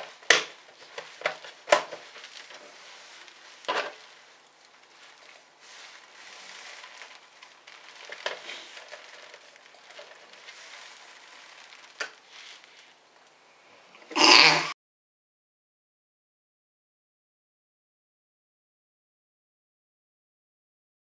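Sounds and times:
rustling and scraping plastic case: 0.0s - 13.0s.

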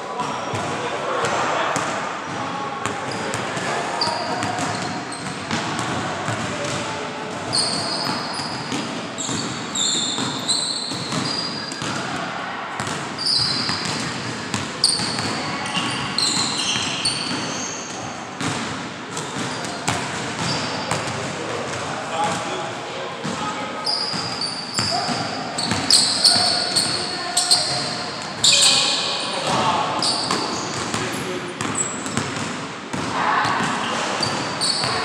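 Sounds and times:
sneakers squeaking on court: 3.1s - 6.8s, 7.4s - 12.0s, 12.8s - 21.2s, 23.8s - 35.0s.

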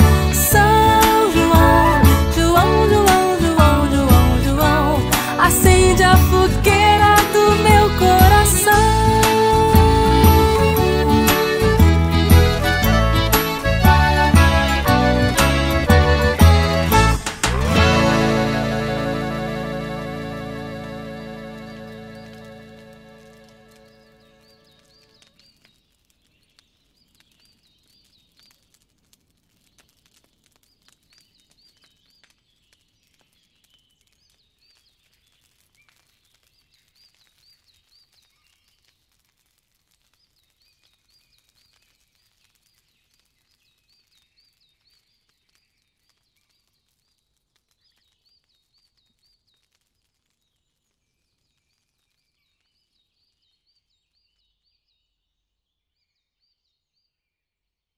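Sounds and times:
crackling clicks: 21.0s - 52.8s.

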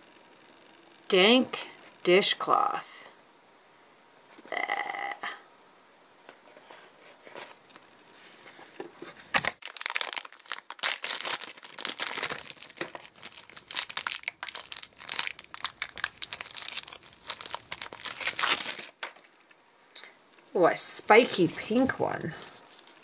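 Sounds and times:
foil bag crinkling and tearing: 9.4s - 19.3s, 22.4s - 23.0s.

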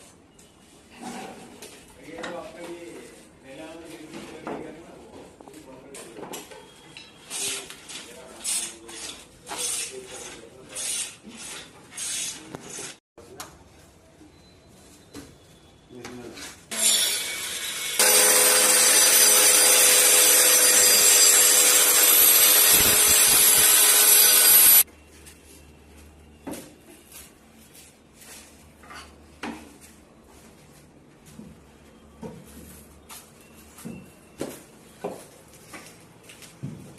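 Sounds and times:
power tool working wood: 16.7s - 24.8s.

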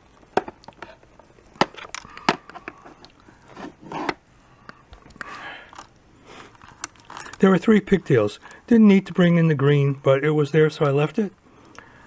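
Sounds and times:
plastic parts clattering: 0.3s - 4.2s, 6.5s - 7.5s
hard plastic parts clicking: 1.6s - 3.1s.

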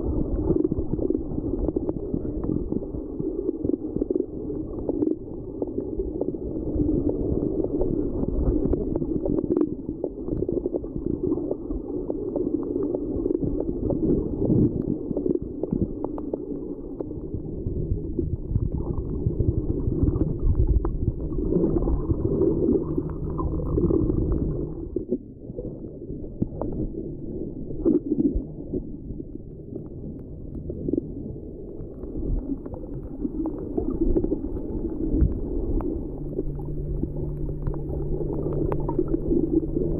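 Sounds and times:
muffled underwater rumble: 0.0s - 39.9s
underwater gurgles: 0.0s - 39.9s.

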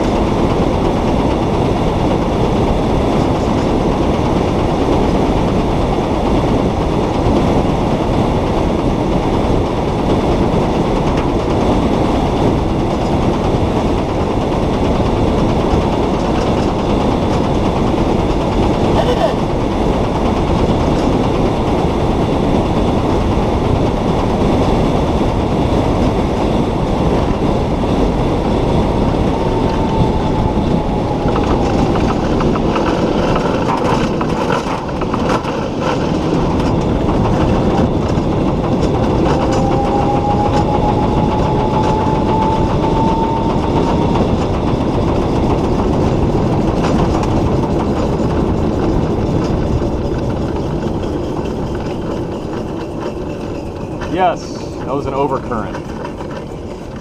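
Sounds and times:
tyre and wind rumble: 0.0s - 57.0s
electric motor whine: 38.8s - 45.2s.

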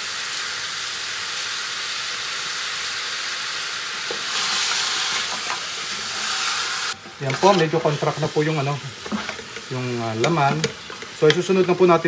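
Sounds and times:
meat sizzling in hot oil: 0.0s - 12.0s
wooden spatula scraping pot: 4.1s - 12.0s.

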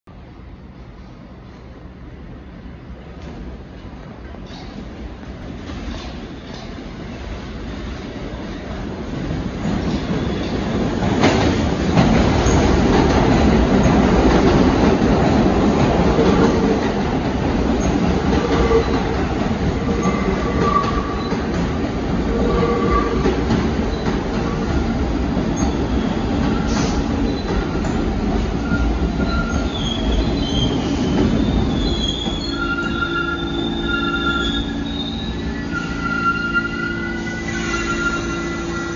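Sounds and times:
subway wheels rumbling on rails: 0.1s - 38.9s
high brake squealing: 28.6s - 38.9s.

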